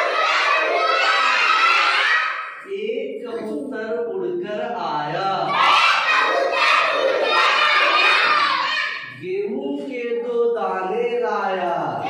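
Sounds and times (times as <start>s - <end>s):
children shouting together: 0.0s - 2.6s, 5.5s - 9.2s
person speaking: 2.6s - 5.5s.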